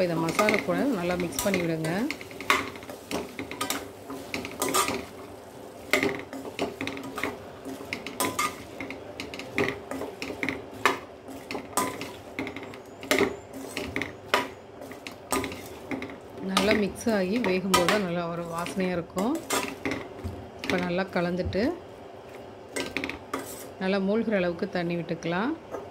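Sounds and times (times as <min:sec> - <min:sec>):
spatula scraping a pan: 0:00.1 - 0:20.1, 0:22.8 - 0:23.8
spatula clacking on pan: 0:00.2 - 0:05.3, 0:05.9 - 0:18.1, 0:22.7 - 0:23.5.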